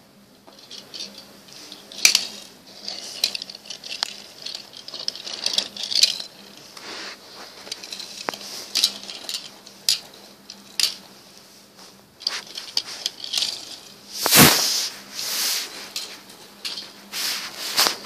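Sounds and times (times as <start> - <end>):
metal toy cars clinking: 0.5 - 11.4, 12.2 - 14.1, 15.7 - 18.0
scratchy rustling on carpet: 6.7 - 9.1, 11.3 - 18.0.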